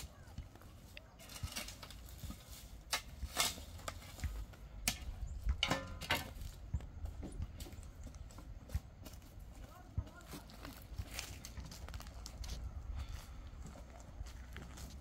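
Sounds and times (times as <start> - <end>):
spade scraping stony soil: 0.7 - 6.5
metallic clank: 4.9 - 6.4.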